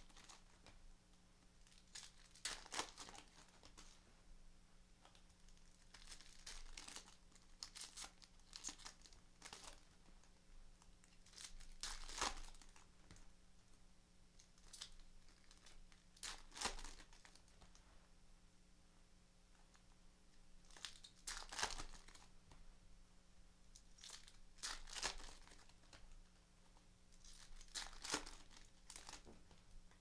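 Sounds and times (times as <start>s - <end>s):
wrappers tearing and crinkling: 0.0s - 0.5s, 1.6s - 3.9s, 5.5s - 9.9s, 11.0s - 12.8s, 14.5s - 17.4s, 20.7s - 22.3s, 23.8s - 26.0s, 27.2s - 29.4s.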